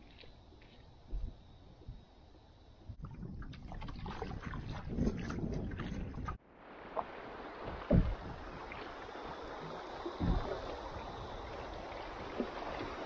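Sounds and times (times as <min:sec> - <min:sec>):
paddle strokes splashing: 0:03.1 - 0:13.0
dull knocks: 0:07.7 - 0:08.4.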